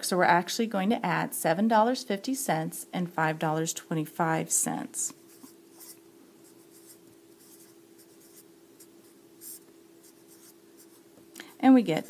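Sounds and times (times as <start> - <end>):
steady low hum: 0.0 - 12.0
marker scratching on paper: 5.2 - 11.0.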